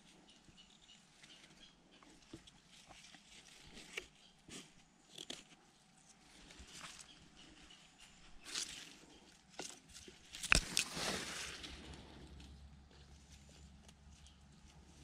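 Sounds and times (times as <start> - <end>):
rustling of dry grass: 10.1 - 15.0.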